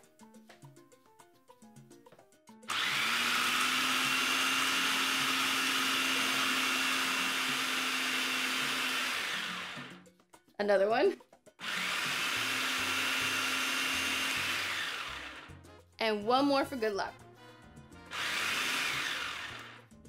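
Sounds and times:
light background music with beat: 0.0s - 20.0s
food processor motor humming: 2.7s - 10.0s, 11.6s - 15.6s, 18.1s - 19.9s.

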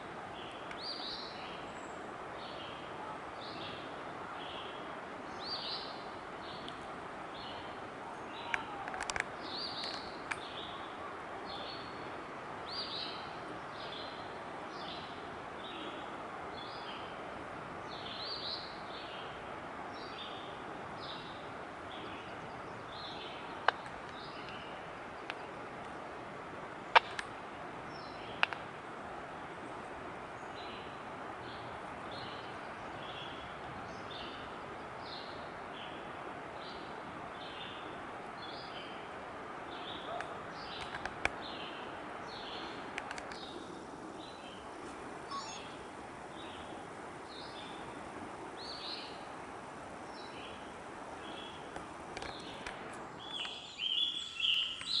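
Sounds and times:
bird calling in short high notes: 45.3s - 45.8s.

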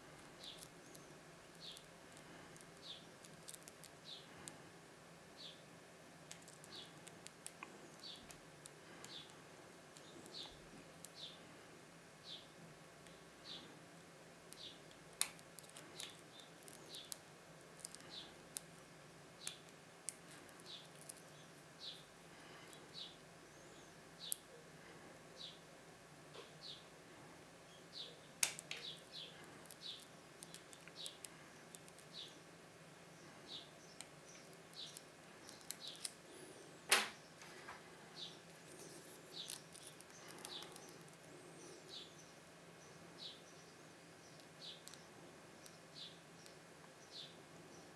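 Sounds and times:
bird chirping: 7.7s - 8.3s, 27.6s - 32.5s, 33.1s - 37.5s, 38.1s - 47.9s.

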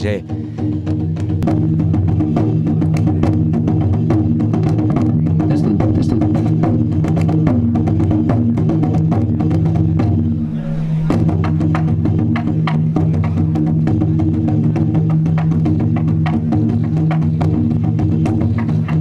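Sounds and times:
quick percussion beat: 0.0s - 19.0s
sustained low tones: 10.2s - 11.6s.

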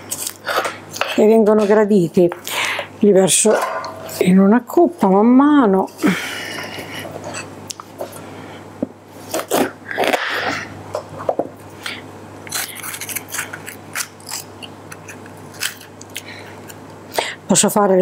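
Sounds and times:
knife crunching through pepper: 9.3s - 10.4s, 12.5s - 16.8s.

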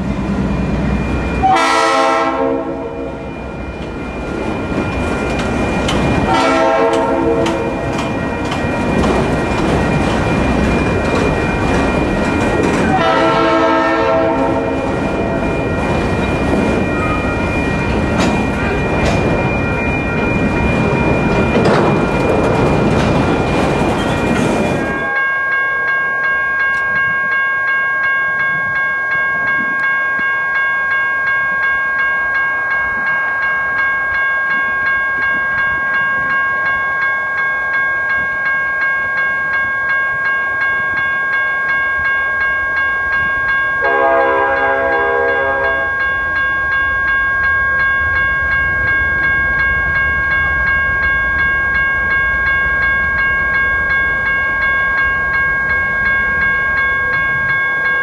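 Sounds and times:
low rumble of locomotives: 0.0s - 25.9s, 42.7s - 58.0s
crossing warning bell ringing: 0.0s - 58.0s
locomotive horn blast: 1.4s - 3.2s, 6.3s - 7.7s, 12.9s - 15.0s, 43.8s - 46.0s.

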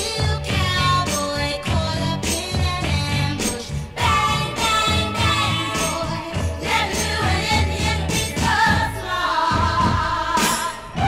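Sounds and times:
pop band with bass and drums: 0.0s - 11.0s
voices singing in harmony: 3.4s - 11.0s.

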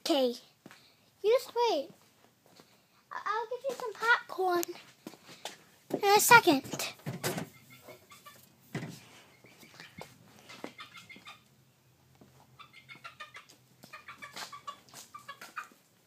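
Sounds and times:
chicken clucking: 7.2s - 11.6s, 12.3s - 15.9s.

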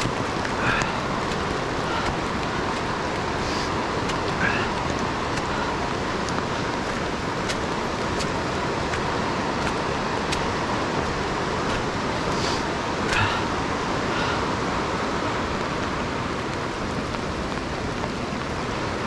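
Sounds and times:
footsteps on rocky trail: 0.0s - 13.5s
river rapids rushing: 0.0s - 19.0s.

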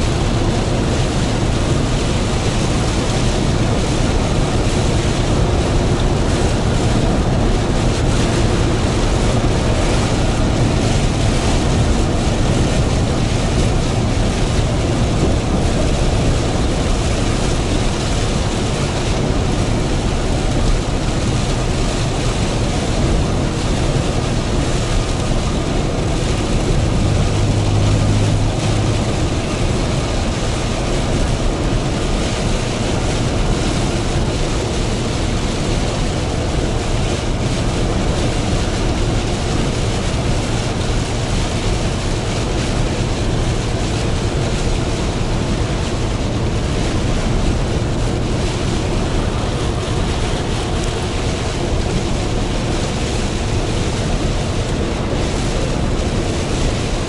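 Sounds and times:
rain: 0.0s - 57.0s
truck engine drone: 0.0s - 57.0s
deep hum: 25.6s - 30.8s.

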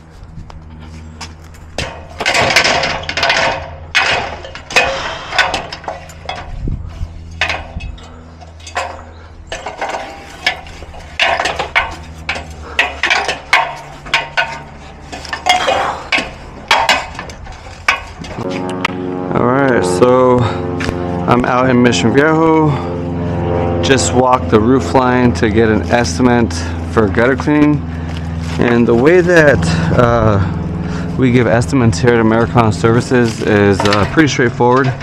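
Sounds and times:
low hum: 0.0s - 35.0s
metallic clanks on ladder rungs: 0.9s - 18.6s, 25.0s - 35.0s.

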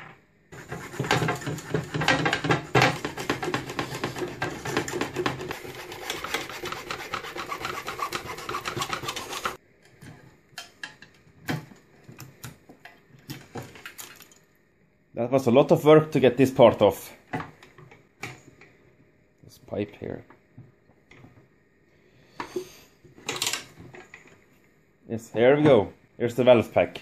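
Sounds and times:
hand tool scraping plastic and metal: 0.6s - 9.6s.

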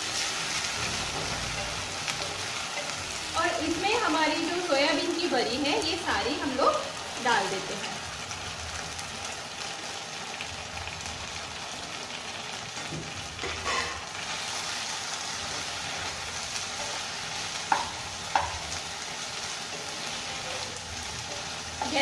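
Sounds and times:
spatula stirring: 0.0s - 4.1s, 13.6s - 22.0s
food sizzling in a pan: 0.0s - 22.0s.

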